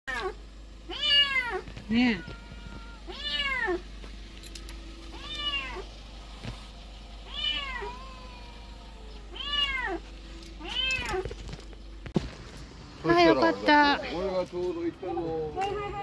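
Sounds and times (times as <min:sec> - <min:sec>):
kitten meowing: 0:00.1 - 0:03.8, 0:05.1 - 0:05.9, 0:07.3 - 0:10.0, 0:10.6 - 0:11.3.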